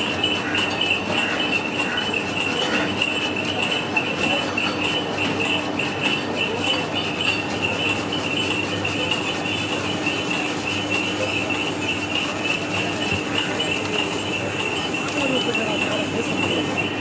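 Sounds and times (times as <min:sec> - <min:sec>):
high-pitched fluttering drone: 0:00.0 - 0:17.0.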